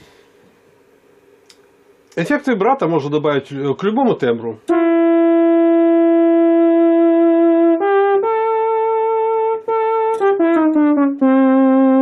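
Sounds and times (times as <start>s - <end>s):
electronic keyboard brass tone: 4.7s - 12.0s.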